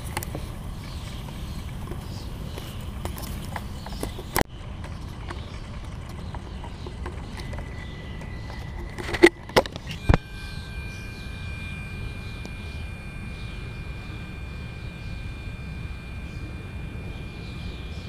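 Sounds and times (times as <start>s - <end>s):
thin high tone: 7.9s - 18.0s
steady low rumble: 9.7s - 18.0s.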